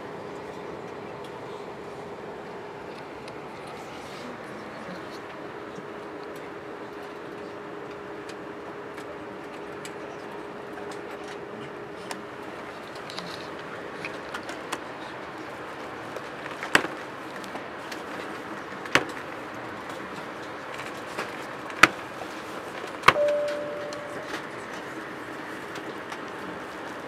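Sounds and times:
faint hum: 0:23.2 - 0:24.7.

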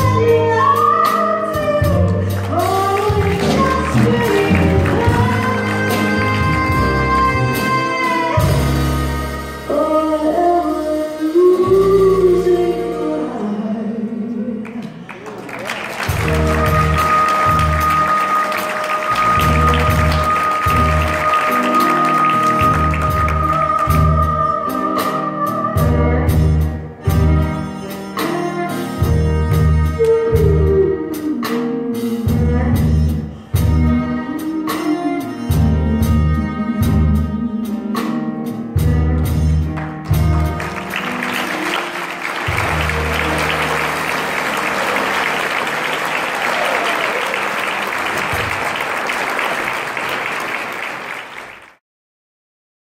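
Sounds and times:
person singing: 0:00.0 - 0:08.8, 0:16.2 - 0:26.7
live band playing: 0:00.0 - 0:51.8
audience applause: 0:02.4 - 0:06.1, 0:14.8 - 0:23.6, 0:40.3 - 0:51.8.

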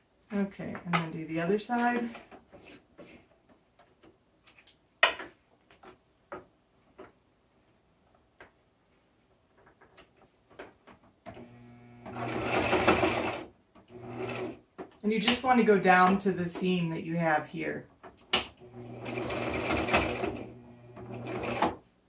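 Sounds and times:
sewing machine motor running: 0:11.4 - 0:14.6, 0:18.6 - 0:21.7.

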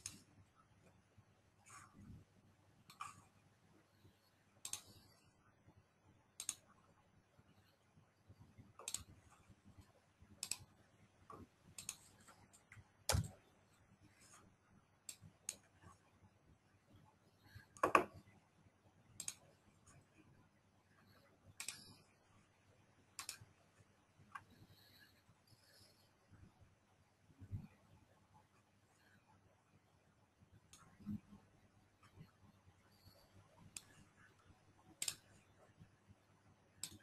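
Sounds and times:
computer mouse and keyboard clicks: 0:00.0 - 0:00.3, 0:02.9 - 0:03.3, 0:04.2 - 0:05.2, 0:06.4 - 0:06.7, 0:08.8 - 0:09.4, 0:10.4 - 0:13.4, 0:17.5 - 0:18.2, 0:19.2 - 0:20.0, 0:21.6 - 0:22.0, 0:23.2 - 0:23.5, 0:32.9 - 0:35.5, 0:36.8 - 0:37.0.

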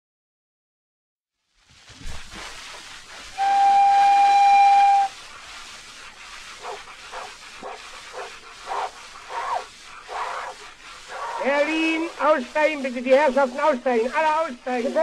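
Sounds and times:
train whistle blast: 0:03.4 - 0:05.2.

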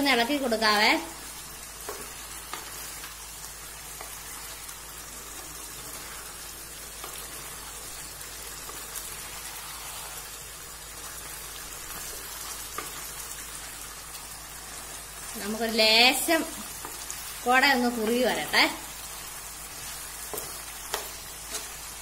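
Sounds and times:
meat sizzling in a pan: 0:00.0 - 0:22.0
wooden spatula scraping: 0:01.8 - 0:03.2, 0:03.8 - 0:13.5, 0:19.1 - 0:22.0.

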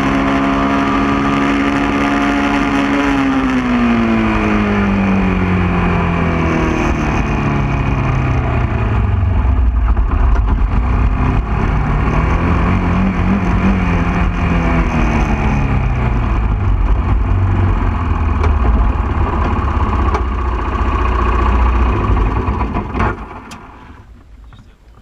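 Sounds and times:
atv engine running: 0:00.0 - 0:25.0
rushing road noise: 0:00.0 - 0:25.0.

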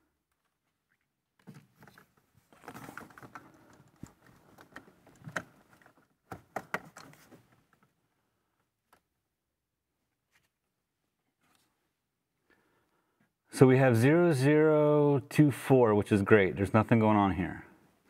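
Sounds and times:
plastic meter clicking and rustling: 0:00.3 - 0:07.9.

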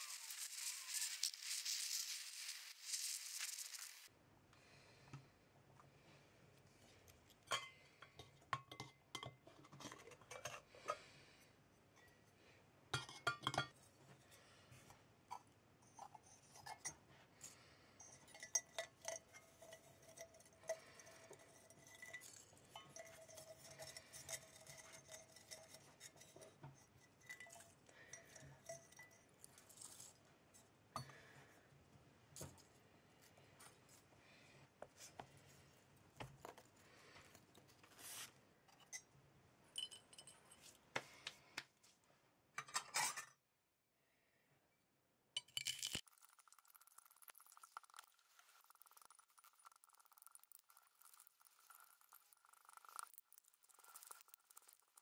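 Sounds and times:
small metal tins clinking: 0:00.0 - 0:04.1, 0:07.1 - 0:11.0, 0:13.0 - 0:13.8, 0:15.3 - 0:30.2, 0:39.8 - 0:40.8, 0:45.4 - 0:55.0.

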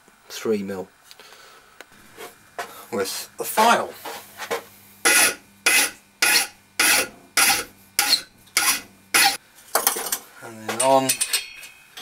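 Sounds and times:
hand file rasping on metal: 0:05.1 - 0:09.4.

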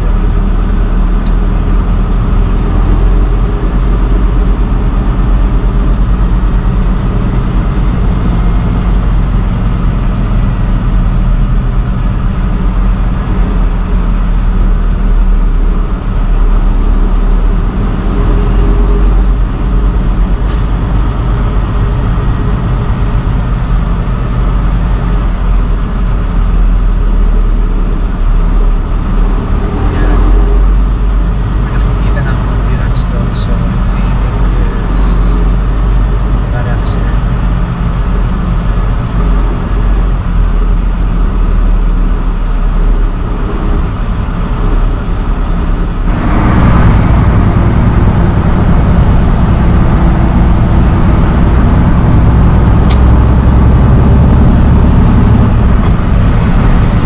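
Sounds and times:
road noise: 0:00.0 - 0:57.0
truck engine drone: 0:00.0 - 0:57.0.

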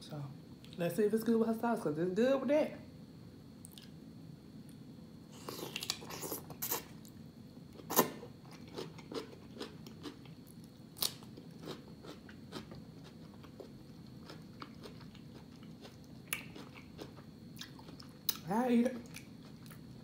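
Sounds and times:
crunchy bite into cucumber: 0:05.3 - 0:07.0, 0:07.8 - 0:18.4
close-up chewing with crunches: 0:07.8 - 0:20.0.

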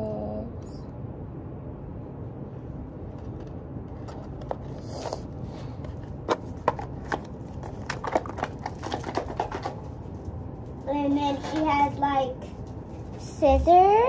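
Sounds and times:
low room hum: 0:00.0 - 0:14.0
cardboard box rustling: 0:03.9 - 0:09.8.

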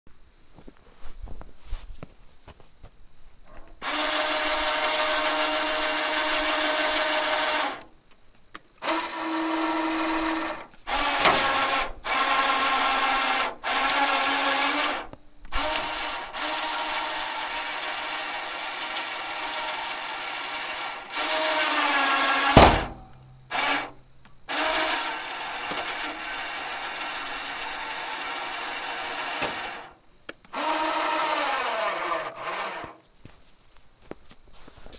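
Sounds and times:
electric winch motor whining: 0:03.6 - 0:07.9, 0:08.8 - 0:33.0
loud knock: 0:22.6 - 0:23.1.

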